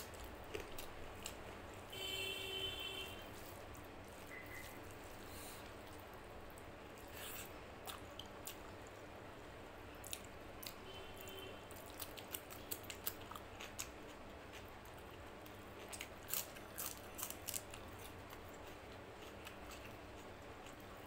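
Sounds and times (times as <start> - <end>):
chewing: 3.4 - 8.8, 11.7 - 20.8.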